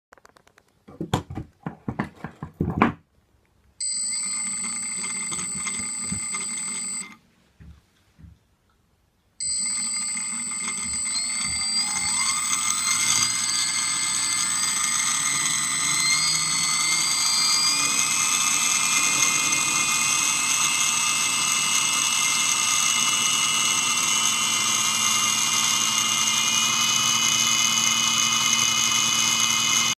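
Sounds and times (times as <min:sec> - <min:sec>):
clicks: 0:03.4 - 0:07.2, 0:09.4 - 0:26.5
electric motor whine: 0:03.8 - 0:07.2, 0:09.4 - 0:30.0.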